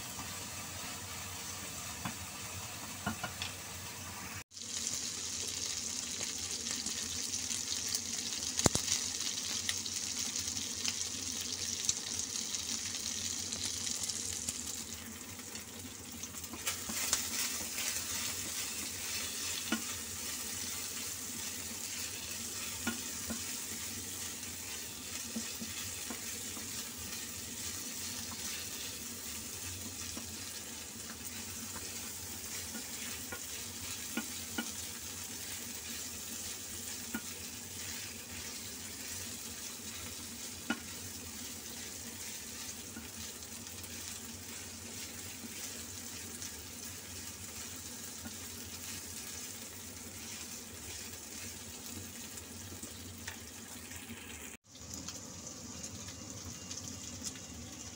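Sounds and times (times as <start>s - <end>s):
meat and vegetables sizzling: 0.0s - 57.9s
spatula tapping a pan: 3.0s - 3.5s, 19.5s - 20.0s, 22.8s - 23.5s, 25.1s - 26.8s, 32.6s - 34.8s, 37.0s - 37.4s, 40.6s - 40.9s
wooden spatula scraping a wok: 16.6s - 47.7s.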